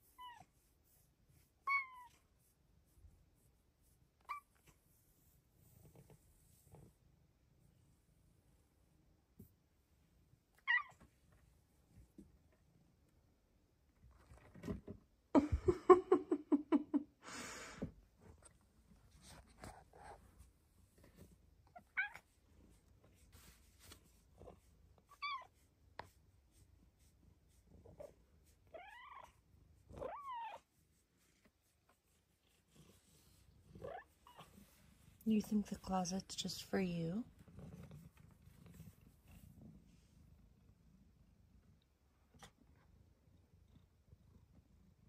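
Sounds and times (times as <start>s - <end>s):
cat chirping and trilling: 0.0s - 0.5s, 1.6s - 2.2s, 4.2s - 4.6s, 10.6s - 11.0s, 21.7s - 22.3s, 25.1s - 25.6s, 28.6s - 29.4s, 30.0s - 30.7s
rustling noise: 18.2s - 21.6s, 22.2s - 28.6s.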